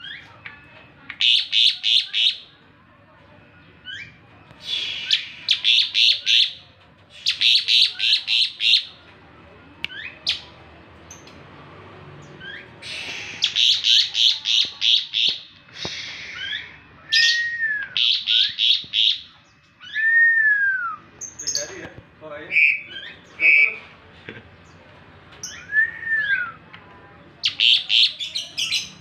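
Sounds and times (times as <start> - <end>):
starling harsh chattering: 3.7 - 9.0, 12.1 - 16.8
bird whistling: 12.4 - 21.0, 22.5 - 23.7, 25.4 - 26.6.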